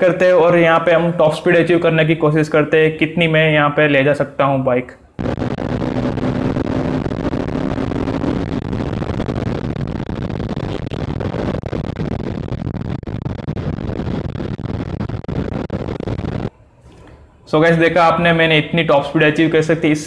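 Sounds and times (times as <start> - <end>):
motorcycle engine at high speed: 5.2 - 10.0.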